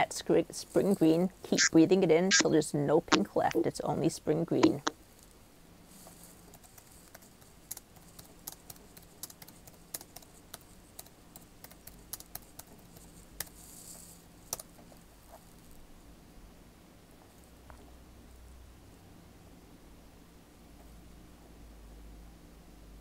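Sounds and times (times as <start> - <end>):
low steady hum: 0.0 - 23.0
typing on a computer keyboard: 6.5 - 13.6, 14.5 - 14.8.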